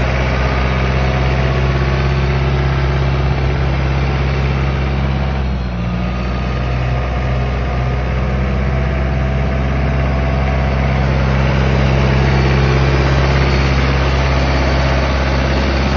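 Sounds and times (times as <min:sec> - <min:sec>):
tractor diesel engine running: 0:00.0 - 0:15.9.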